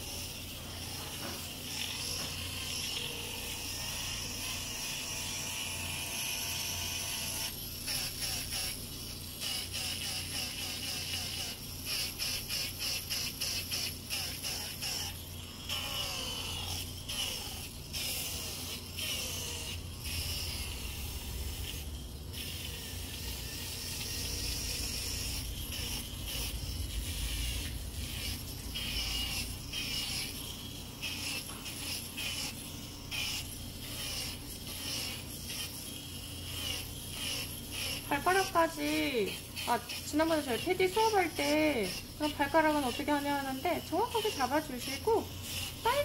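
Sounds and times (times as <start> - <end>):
foot drill motor hum: 0.0 - 46.0
sanding pad scraping skin: 16.1 - 46.0.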